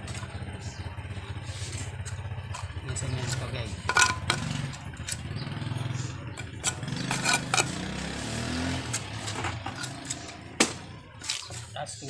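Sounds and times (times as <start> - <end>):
engine running: 0.0 - 11.8
trowel scraping cement: 1.3 - 5.2, 6.0 - 11.8.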